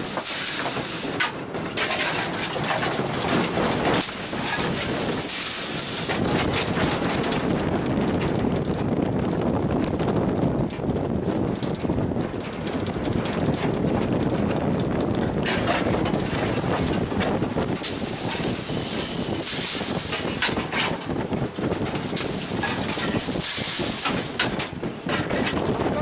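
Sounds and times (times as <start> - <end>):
steam locomotive hissing steam: 0.0 - 1.2, 4.0 - 6.2, 17.8 - 20.2, 22.2 - 24.3
steady low rumble: 0.0 - 26.0.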